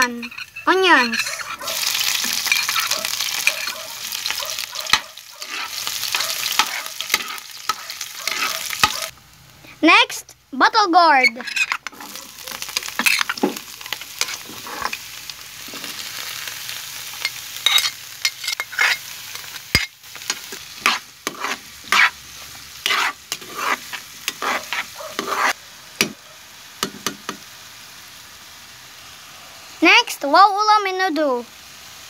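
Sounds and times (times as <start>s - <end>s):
metal spatula scraping pan: 0.0s - 9.1s, 11.2s - 16.0s, 17.3s - 25.6s
vegetables sizzling in oil: 0.0s - 32.0s.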